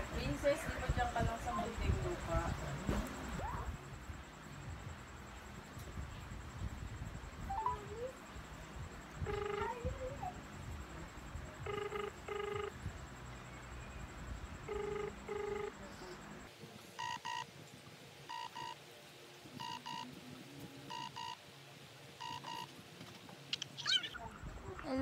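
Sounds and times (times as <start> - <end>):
telephone ringback tone: 7.5 - 8.1, 9.2 - 10.0, 11.6 - 12.8, 14.6 - 15.8, 17.0 - 17.5, 18.3 - 18.8, 19.6 - 20.1, 20.9 - 21.4, 22.2 - 22.7.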